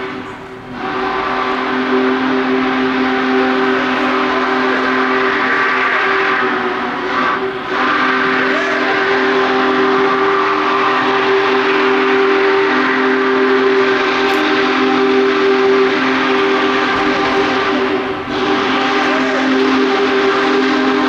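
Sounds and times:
steam whistle blasts: 0.0 - 21.0.

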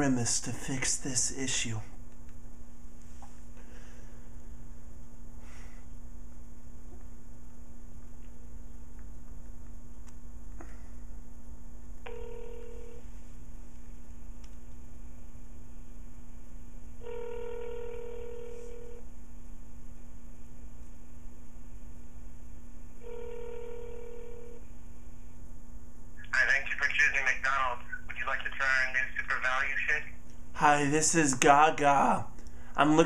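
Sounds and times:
low hum: 0.0 - 17.1
telephone ringback tone: 12.1 - 13.1, 17.0 - 19.0, 23.0 - 24.6.

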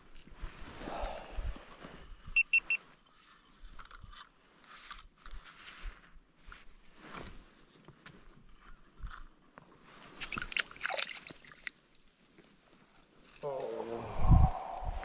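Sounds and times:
water sloshing and splashing: 10.0 - 11.9.

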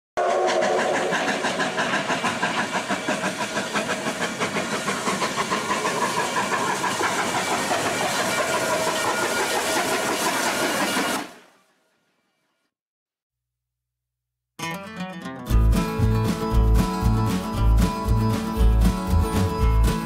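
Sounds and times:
steam hissing: 0.2 - 11.4
steam locomotive rhythmic beat: 0.2 - 11.4, 15.5 - 20.0.

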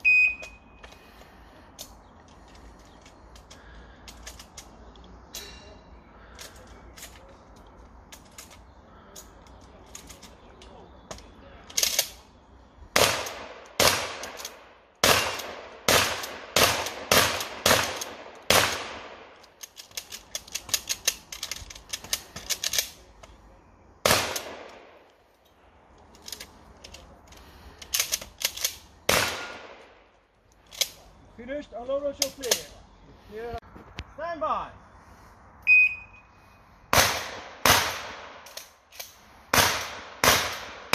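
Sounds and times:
shotgun shots echoing: 13.0 - 14.4, 15.0 - 19.3, 24.0 - 25.0, 29.1 - 30.0, 36.9 - 38.4, 39.5 - 40.9.

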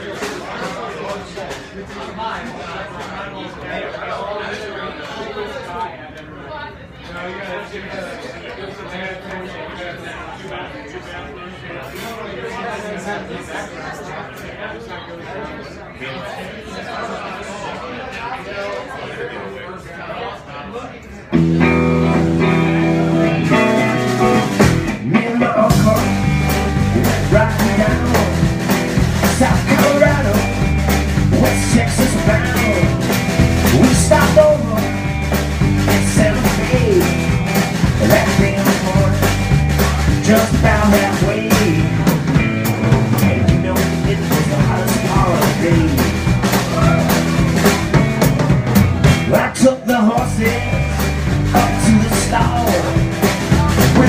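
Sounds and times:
live band playing upbeat song: 21.3 - 54.0
drum kit beat: 21.4 - 54.0.

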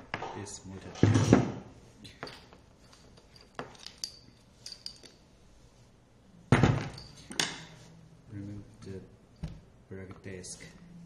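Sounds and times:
light metal clinks: 2.1 - 5.2.

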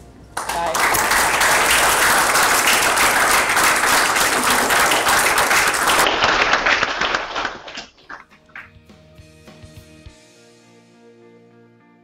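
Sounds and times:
audience applauding: 0.4 - 8.7.

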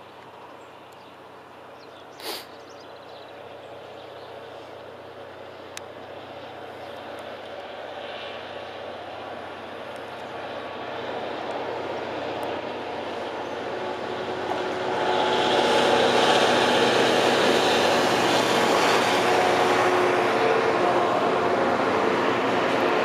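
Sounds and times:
diesel locomotive passing: 0.0 - 23.0.

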